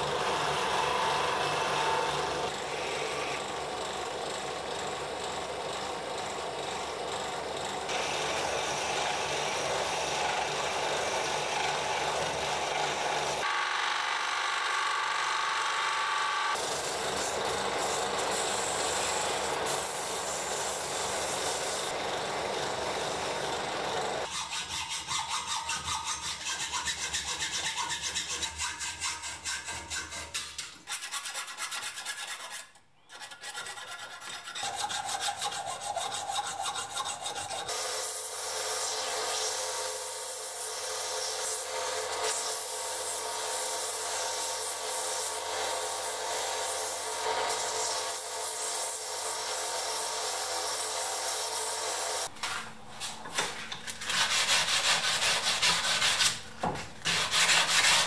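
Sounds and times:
file scraping metal: 24.2 - 37.8, 40.6 - 58.0.

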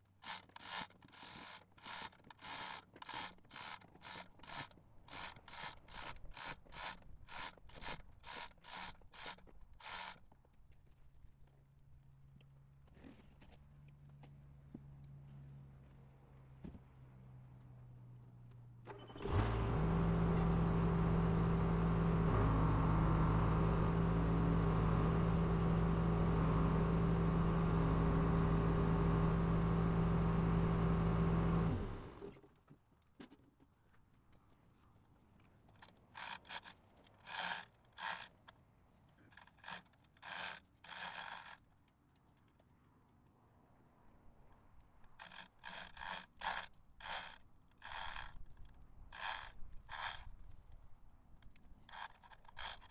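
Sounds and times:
backhoe diesel engine: 18.8 - 32.4.

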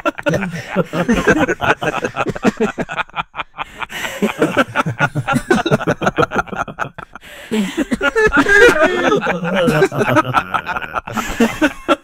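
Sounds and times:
men chuckling softly: 0.0 - 12.0.

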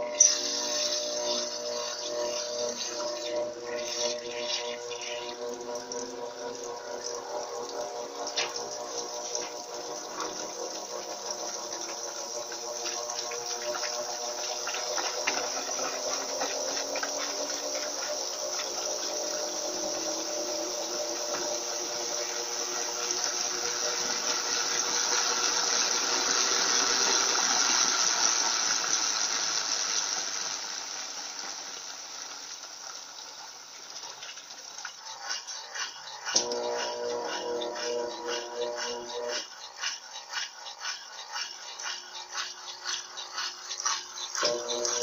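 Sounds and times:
washing machine motor hum: 0.0 - 45.0.

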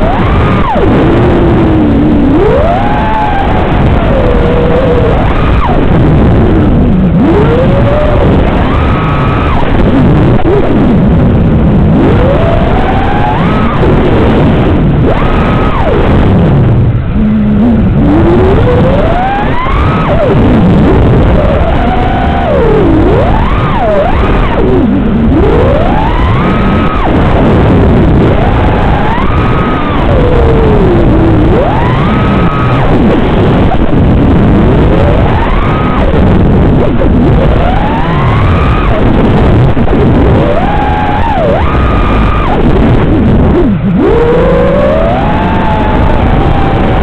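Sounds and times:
drone motors whining: 0.0 - 47.0
propeller rushing noise: 1.6 - 22.6.

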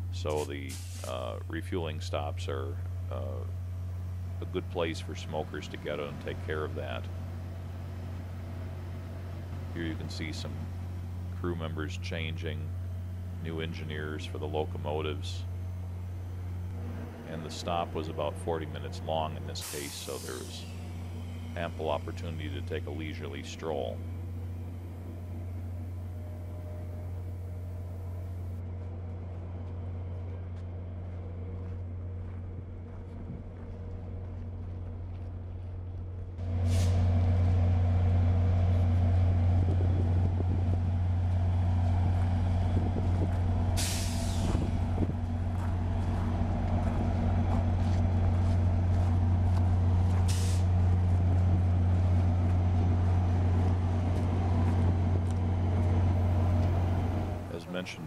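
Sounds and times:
diesel locomotive idling: 0.0 - 58.0
air brake hissing: 0.7 - 1.2, 19.6 - 21.5, 36.6 - 37.1, 43.8 - 44.7, 50.2 - 50.8.

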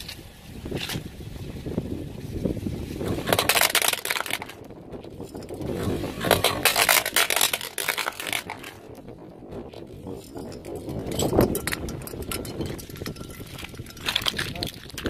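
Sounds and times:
car low rumble: 0.0 - 15.0
plastic toy crackling and snapping: 3.3 - 4.7, 6.3 - 8.8.

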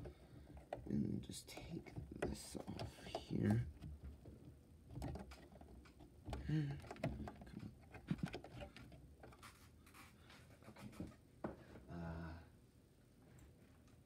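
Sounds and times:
plastic bricks clicking and scraping: 0.0 - 9.6.

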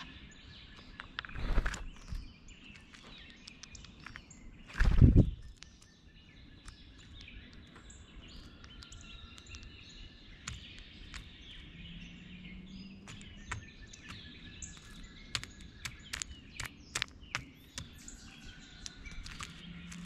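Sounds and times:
songbirds chirping and singing: 0.0 - 20.0
bird pecking at seed: 0.7 - 5.9, 6.5 - 12.0, 12.6 - 20.0.

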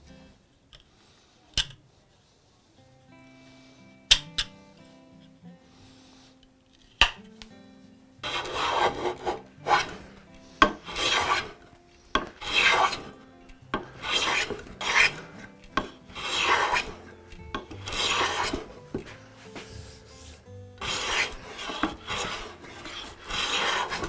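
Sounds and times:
hand plane rasping on wood: 8.2 - 11.6, 12.2 - 13.1, 13.8 - 24.0.

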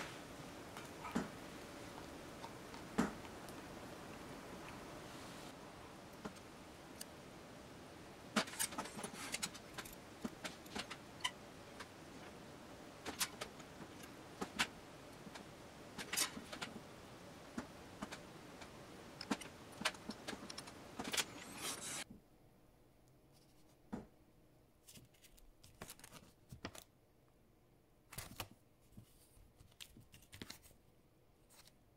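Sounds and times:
faint steady hiss: 0.0 - 31.9.

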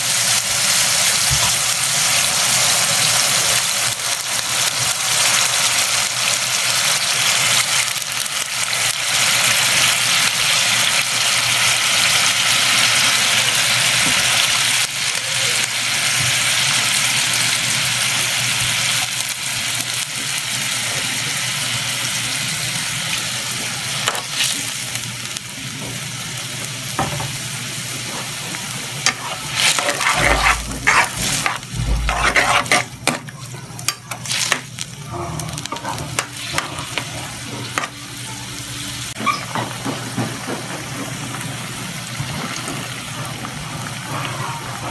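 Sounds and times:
sauce bubbling and sizzling: 0.0 - 44.8
spatula scraping a wok: 29.0 - 33.3, 33.9 - 37.9.

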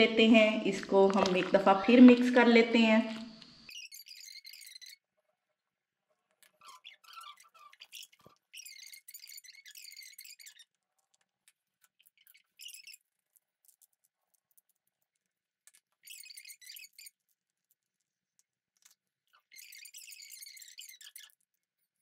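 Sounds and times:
spatula scraping bowl: 0.3 - 2.7.

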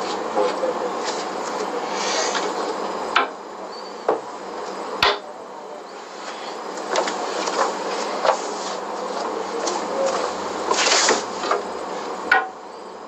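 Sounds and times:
steady hiss: 0.0 - 13.0.

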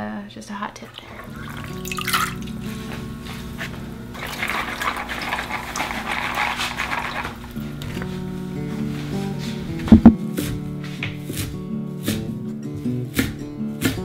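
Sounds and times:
water splashing through colander: 0.8 - 2.6, 4.2 - 7.6
background music: 7.1 - 14.0.

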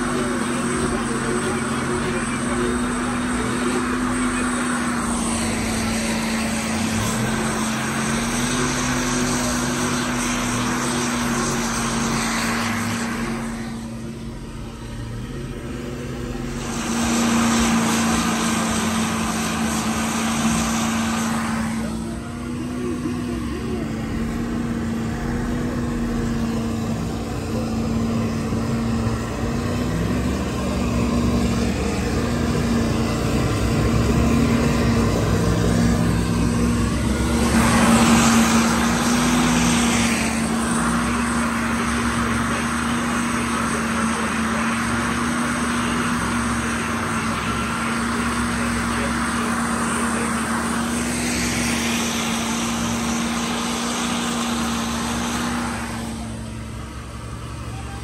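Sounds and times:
truck engine running under load: 0.0 - 58.0
loud rushing hiss: 16.1 - 21.9.

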